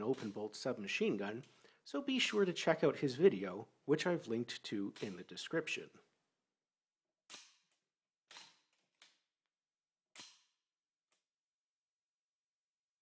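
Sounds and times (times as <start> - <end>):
gun bolt metallic clacks: 7.3 - 9.2, 10.2 - 10.5.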